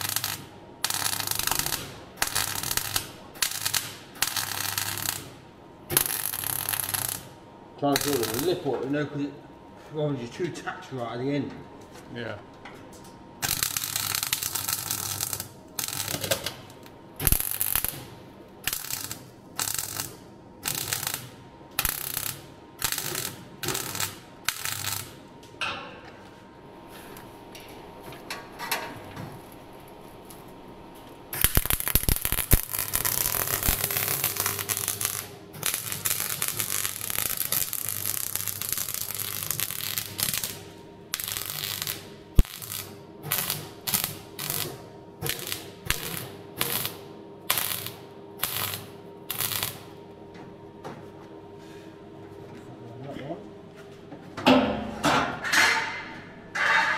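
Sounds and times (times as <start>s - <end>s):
welder arc crackling: 0.0s - 8.8s, 13.4s - 25.2s, 31.1s - 50.0s.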